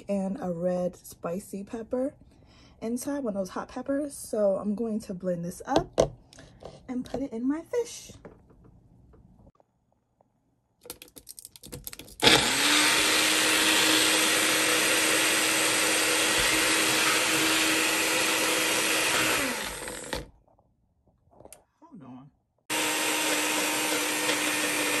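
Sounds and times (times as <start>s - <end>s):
blender motor whine: 12.2s - 20.3s, 22.7s - 25.0s.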